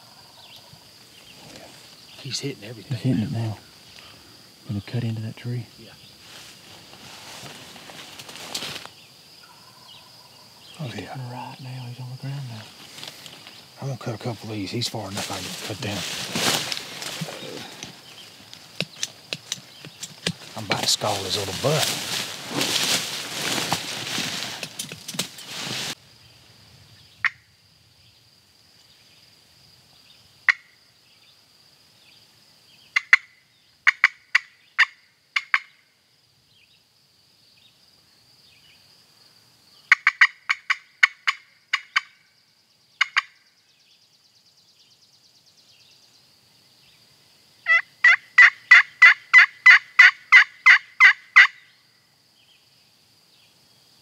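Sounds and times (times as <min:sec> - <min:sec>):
brief rustle: 0:06.4 - 0:08.9
turkey call cutts: 0:47.7 - 0:51.6
turkey call yelps: 0:47.7 - 0:51.6.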